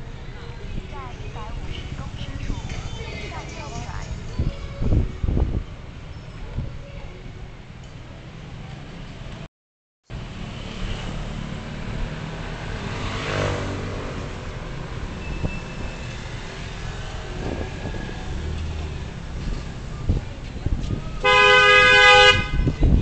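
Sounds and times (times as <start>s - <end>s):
traffic rumble: 0.0s - 9.5s, 10.1s - 23.0s
vehicle passing close: 10.1s - 20.2s.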